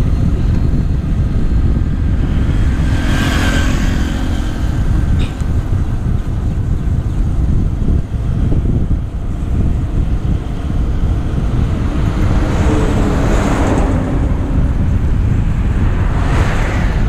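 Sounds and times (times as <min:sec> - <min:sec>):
car tyre and engine noise: 0:00.0 - 0:17.0
truck engine passing: 0:00.0 - 0:17.0
wind buffeting microphone: 0:00.0 - 0:17.0.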